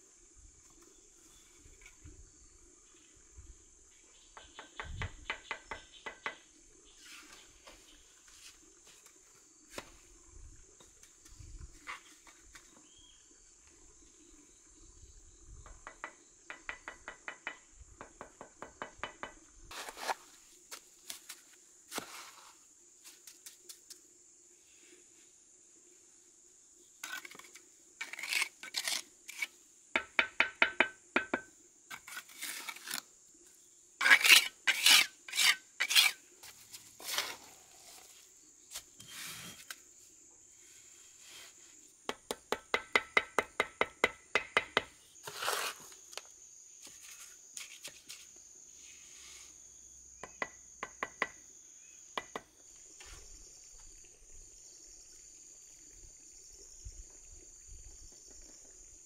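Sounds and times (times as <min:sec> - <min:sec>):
trowel scraping mortar: 0:27.0 - 0:29.6, 0:31.9 - 0:33.1, 0:34.0 - 0:38.0, 0:38.7 - 0:39.8, 0:45.2 - 0:46.0
trowel tapping on bricks: 0:30.0 - 0:31.5, 0:42.1 - 0:45.0, 0:52.2 - 0:52.5
high insect drone: 0:39.3 - 0:59.0.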